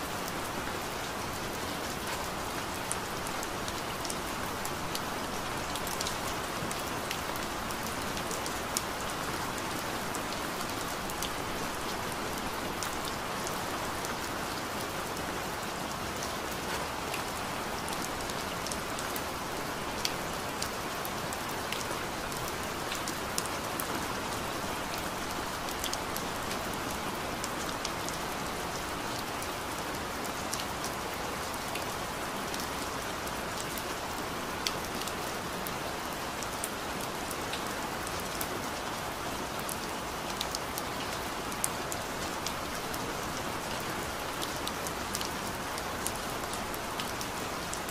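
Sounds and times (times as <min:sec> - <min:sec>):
steady rain hiss: 0:00.0 - 0:47.9.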